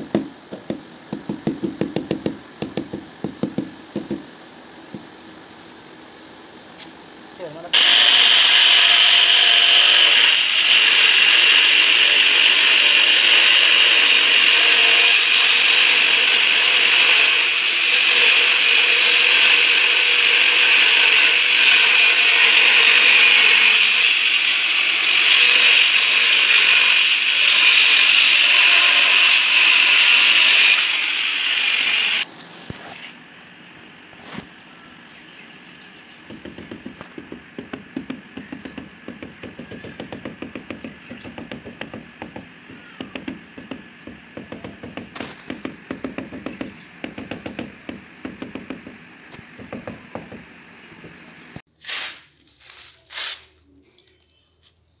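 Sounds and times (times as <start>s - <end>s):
hammer tapping on tile: 0.1s - 4.3s, 36.3s - 51.2s
angle grinder cutting tile: 7.8s - 32.2s, 36.3s - 51.4s.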